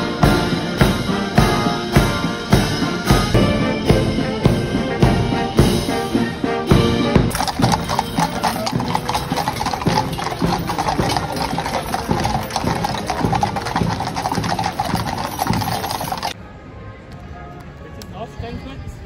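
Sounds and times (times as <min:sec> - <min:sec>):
horse hooves clip-clopping on road: 0:06.7 - 0:16.4.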